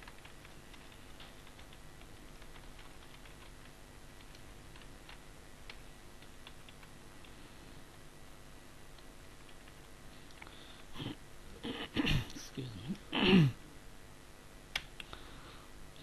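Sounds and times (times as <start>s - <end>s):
steady low hiss: 0.0s - 16.0s.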